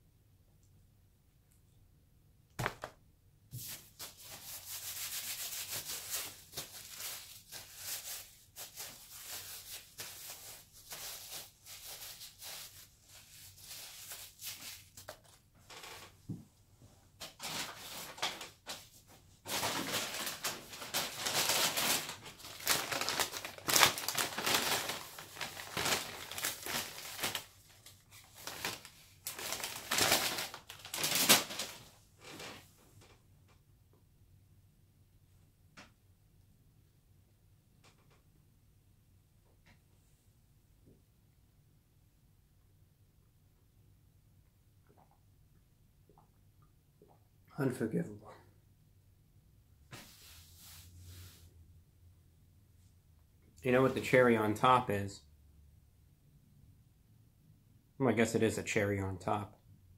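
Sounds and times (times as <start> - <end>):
paper packaging rustling: 3.6 - 16.2, 17.2 - 32.6.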